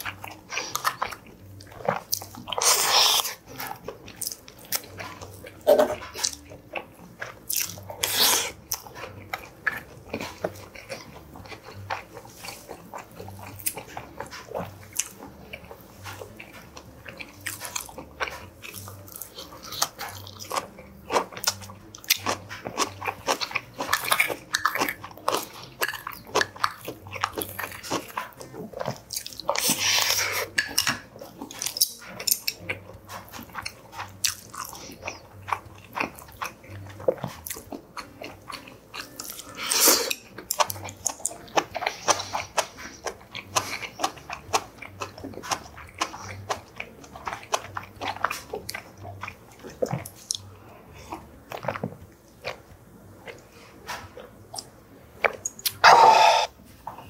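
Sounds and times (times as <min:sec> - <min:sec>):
wet mouth sounds: 0:00.0 - 0:06.4, 0:54.5 - 0:56.5
person crunching vegetables: 0:00.0 - 0:57.0.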